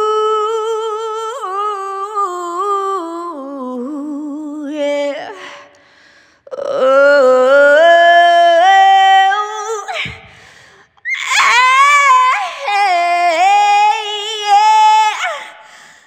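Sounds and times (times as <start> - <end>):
woman singing blues vocal runs: 6.5 - 15.8.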